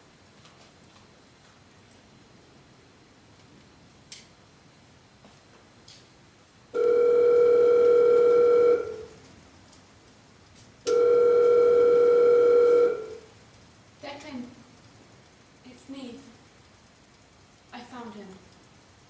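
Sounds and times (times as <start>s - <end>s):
electronic telephone ring: 6.8s - 9.1s, 10.9s - 13.2s.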